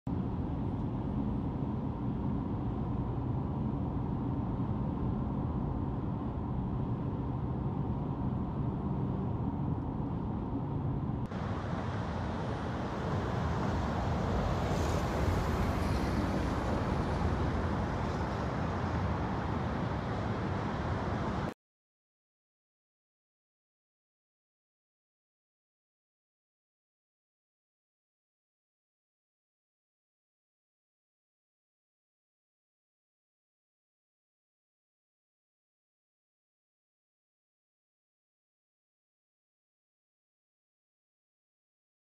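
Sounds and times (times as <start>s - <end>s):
car interior road rumble: 0.2s - 21.5s
loud hissy road noise: 11.3s - 21.5s.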